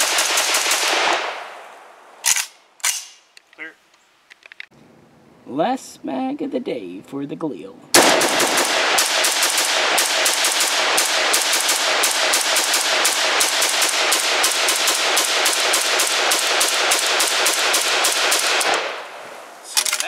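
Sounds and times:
rapid rifle fire: 0.0 - 1.4, 8.0 - 19.0.

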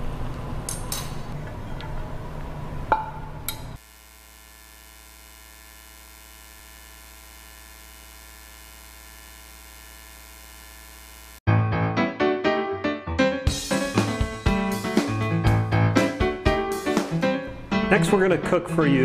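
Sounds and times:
buzzy electrical mains hum: 0.0 - 11.4.

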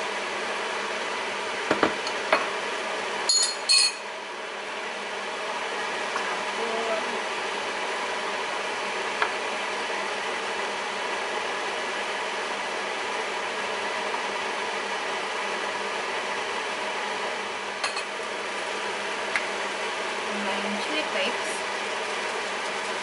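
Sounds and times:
spatula stirring pasta in pan: 21.5 - 23.0.

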